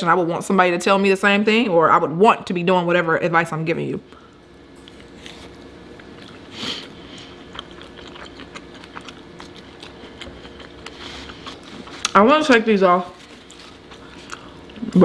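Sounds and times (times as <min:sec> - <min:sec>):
chewing and wet mouth sounds: 0:04.6 - 0:15.0.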